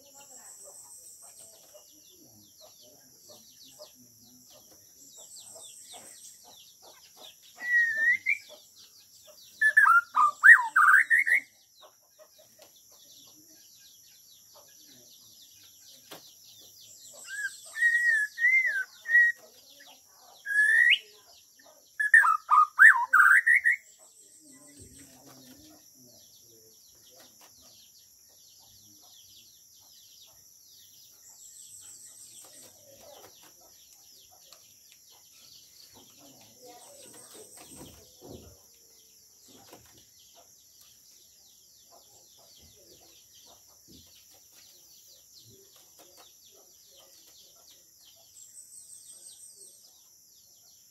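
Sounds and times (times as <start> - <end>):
bird singing whistled phrases: 7.6 - 8.5, 9.6 - 11.5, 17.2 - 19.4, 20.5 - 21.1, 22.0 - 23.9.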